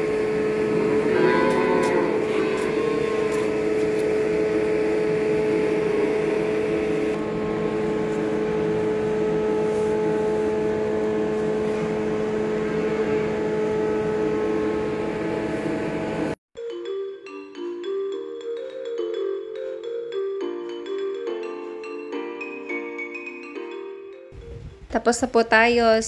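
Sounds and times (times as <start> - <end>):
steady machine hum: 0.0 - 16.4.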